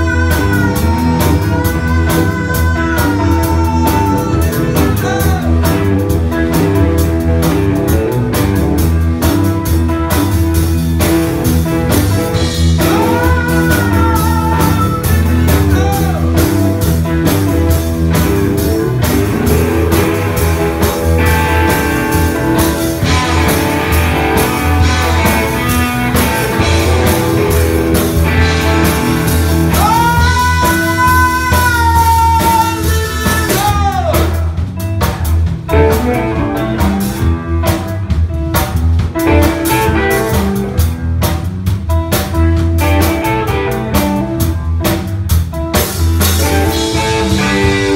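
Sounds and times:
blues-rock band playing live: 0.0s - 47.9s
held high guitar notes: 18.1s - 31.0s.

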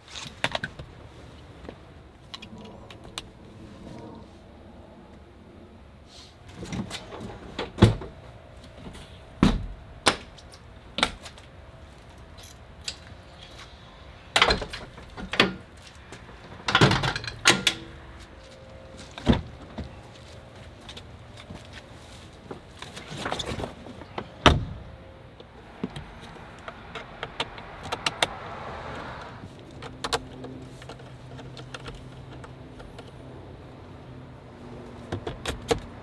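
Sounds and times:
car doors and tailgate clunking: 22.6s - 25.0s, 35.0s - 36.0s.

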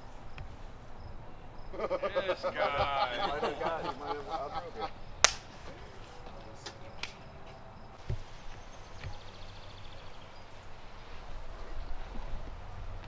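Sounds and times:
wind rumble on microphone: 8.0s - 13.0s.

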